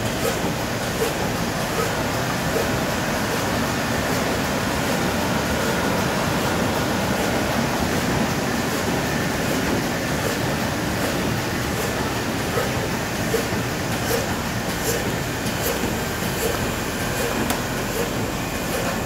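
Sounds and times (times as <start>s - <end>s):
loud machine noise: 0.0s - 19.0s.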